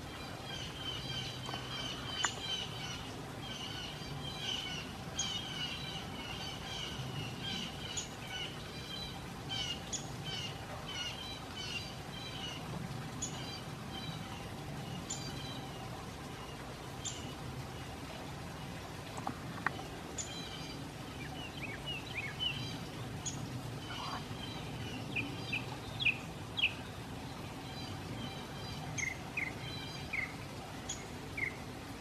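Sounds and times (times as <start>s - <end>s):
small birds chirping: 0.2s - 9.0s.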